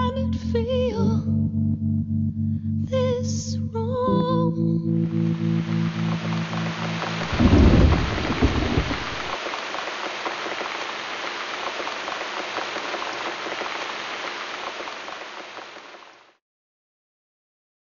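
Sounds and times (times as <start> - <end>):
steady rain falling: 5.0 - 16.4.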